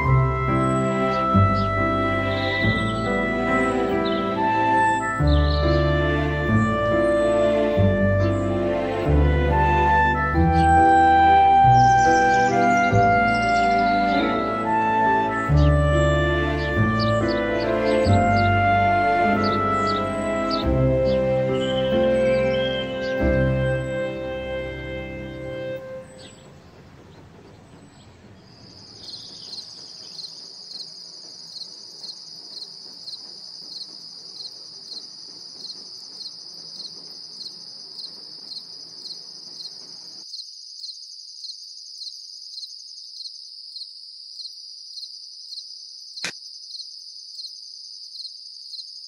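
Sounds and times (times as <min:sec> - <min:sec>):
crickets chirping: 0:25.8 - 0:49.0
sharp click: 0:46.2 - 0:46.4.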